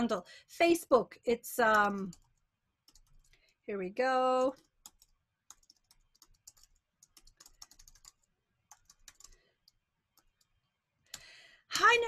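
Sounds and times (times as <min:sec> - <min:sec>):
faint keyboard typing: 0:01.7 - 0:03.6, 0:04.4 - 0:11.3.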